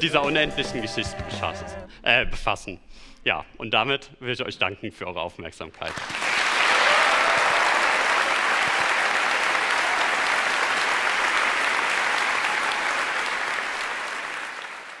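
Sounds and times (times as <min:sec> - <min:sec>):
large audience applauding: 0:05.8 - 0:15.0.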